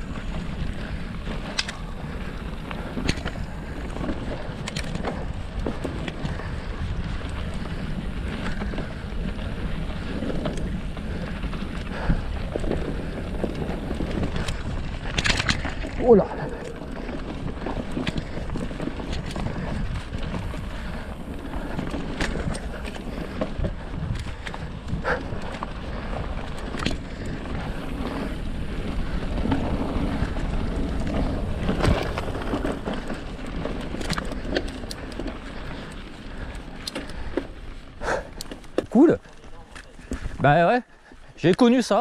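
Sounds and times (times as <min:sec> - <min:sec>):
bike tyres on dirt: 0:00.0 - 0:42.0
bike knocks and rattles: 0:02.8 - 0:35.9.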